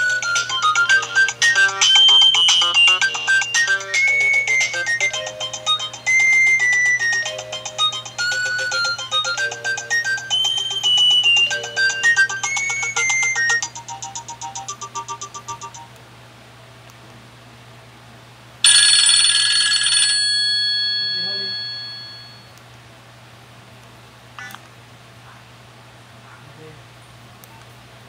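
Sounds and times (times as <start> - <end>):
mobile phone ringtone melody: 0.0 - 15.9, 18.6 - 22.5.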